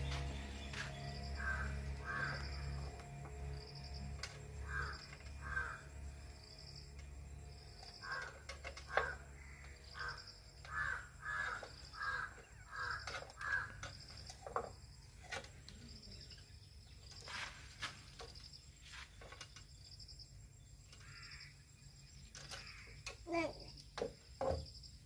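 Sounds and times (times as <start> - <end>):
crow cawing: 1.4 - 2.8, 4.6 - 5.9, 8.0 - 13.8, 21.0 - 21.5.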